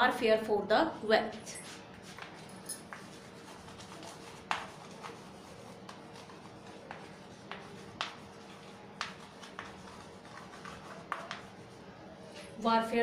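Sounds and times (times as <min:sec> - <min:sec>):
chalk tapping and scraping on blackboard: 0:01.6 - 0:11.9.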